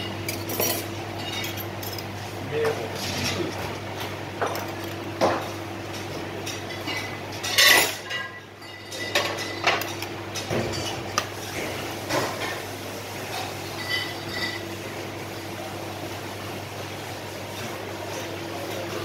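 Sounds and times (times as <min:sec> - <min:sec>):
metal bowls clinking on worktop: 0:13.8 - 0:14.6.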